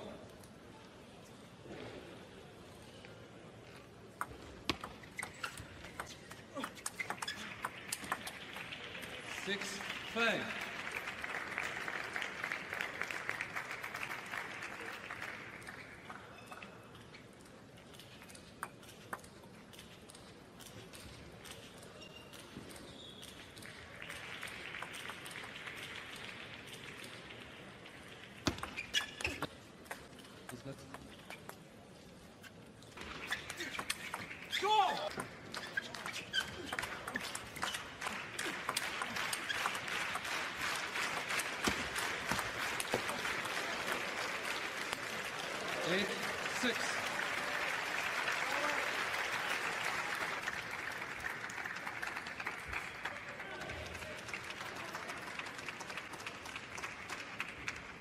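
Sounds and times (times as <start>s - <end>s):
crowd applauding: 7.2s - 16.5s, 23.6s - 28.5s, 36.0s - 58.0s.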